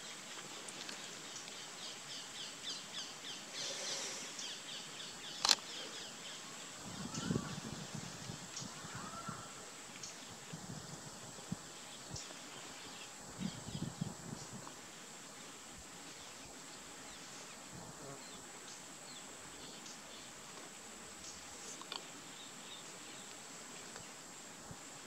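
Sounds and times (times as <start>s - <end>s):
insects hissing: 0.0s - 25.0s.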